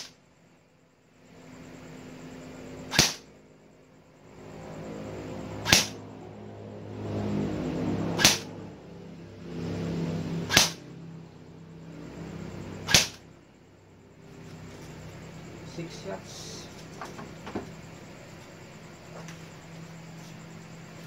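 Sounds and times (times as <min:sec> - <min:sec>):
low hum: 0:00.0 - 0:21.0
airsoft rifle shots: 0:02.9 - 0:03.3, 0:05.6 - 0:06.0, 0:08.2 - 0:08.5, 0:10.5 - 0:10.8, 0:12.8 - 0:13.2.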